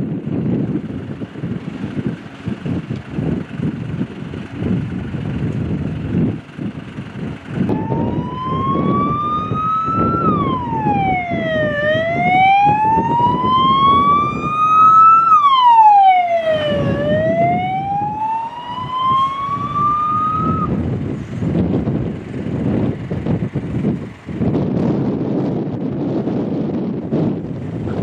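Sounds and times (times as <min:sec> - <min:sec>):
wind rumble on microphone: 0:00.0 - 0:28.0
fire engine siren wailing: 0:07.0 - 0:21.8.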